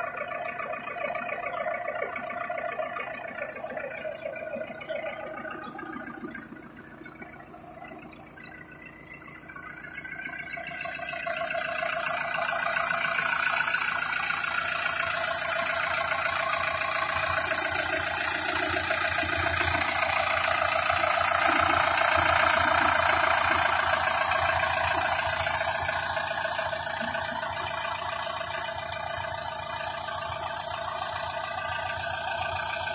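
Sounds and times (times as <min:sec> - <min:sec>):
tractor diesel engine idling: 0:00.0 - 0:32.9.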